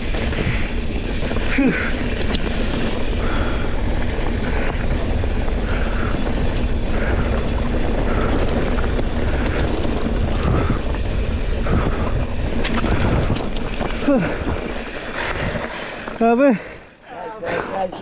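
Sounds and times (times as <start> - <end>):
wind buffeting microphone: 0.0 - 16.2
bike tyres rolling over gravel: 0.0 - 18.0.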